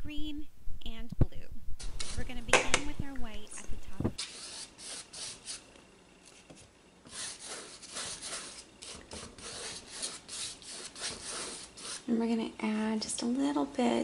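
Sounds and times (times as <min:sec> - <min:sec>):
paint brush strokes on canvas: 0:06.3 - 0:12.1.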